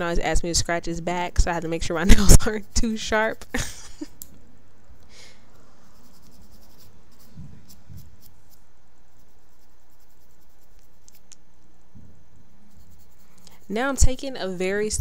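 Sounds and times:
steady low hum: 0.0s - 15.0s
nail file scraping fingernails: 5.6s - 11.4s, 12.7s - 14.2s.

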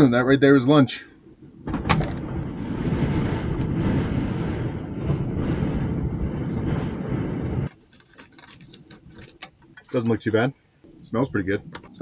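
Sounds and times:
strong wind blowing in gusts: 0.0s - 7.7s.

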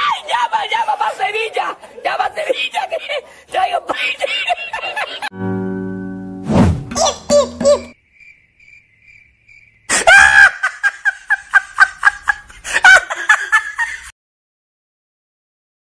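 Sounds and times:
high-pitched laughter: 2.1s - 5.3s, 6.9s - 8.0s, 9.9s - 14.1s.

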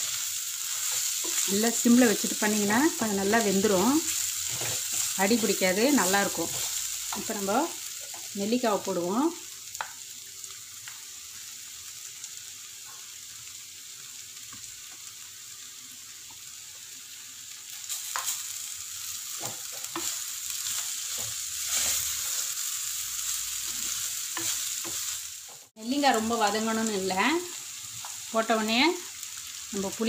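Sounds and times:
food sizzling in oil: 0.0s - 30.0s
wooden spatula scraping: 3.7s - 7.4s, 19.4s - 22.6s.

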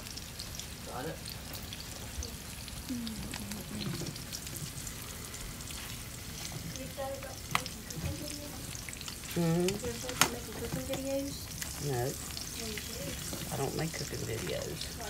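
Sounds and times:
eggs sizzling in a pan: 0.0s - 15.0s
spatula scraping a pan: 12.4s - 13.7s.

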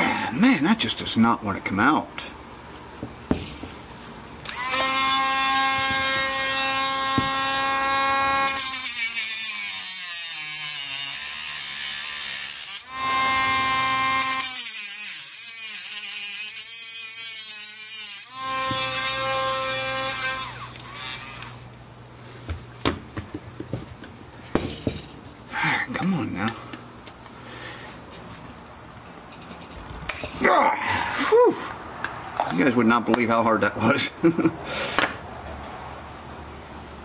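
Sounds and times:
metal grinding hiss: 0.4s - 21.7s, 24.4s - 32.4s
rotary tool high whine: 3.3s - 21.9s, 26.0s - 32.4s.

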